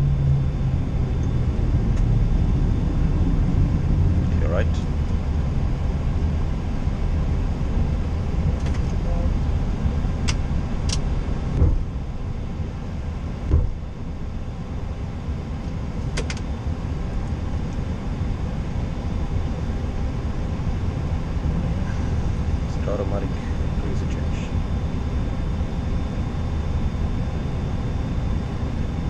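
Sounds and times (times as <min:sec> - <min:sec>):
airliner cockpit rumble: 0:00.0 - 0:29.0
low thumps: 0:11.5 - 0:12.0, 0:13.5 - 0:13.8.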